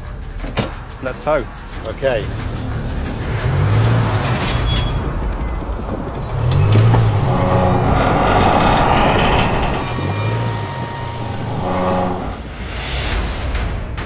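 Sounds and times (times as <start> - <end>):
car engine under heavy load: 0.0 - 12.7
rolling stock rumble: 5.6 - 12.5.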